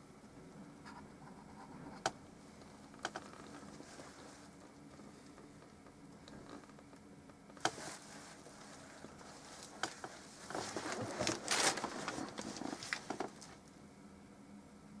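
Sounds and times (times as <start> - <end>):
rustling scraping: 3.1 - 5.3, 7.6 - 13.7.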